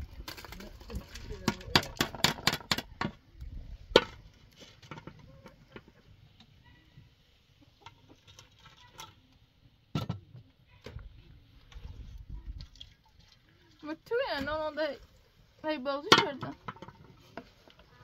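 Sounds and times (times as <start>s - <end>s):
metal pots knocking and clinking: 0.3s - 3.2s, 3.9s - 4.2s, 16.0s - 17.5s.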